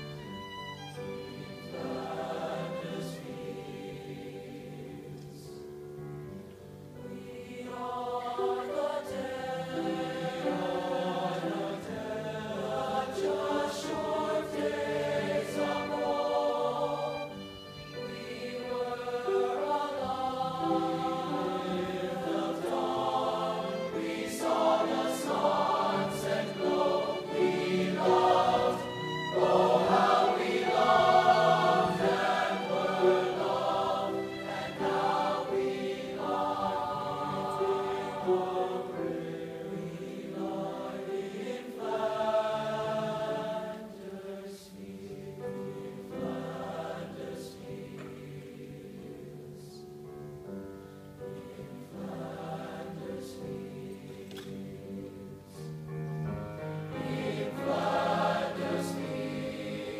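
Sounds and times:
solo violin: 0.0 - 5.2, 13.0 - 39.8
boys' choir singing: 1.2 - 5.7, 7.0 - 49.9, 51.2 - 55.7, 56.8 - 59.9.

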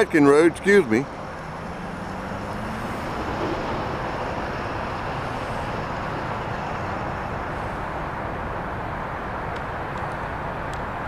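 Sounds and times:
freight train rumble: 0.0 - 10.2.

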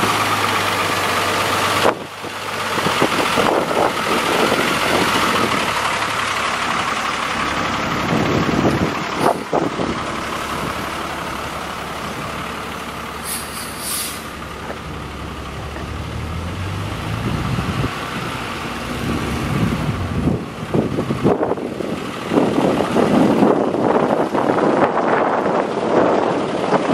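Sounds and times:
truck diesel engine pulling away: 0.0 - 26.9
short high hiss: 13.2 - 14.3.

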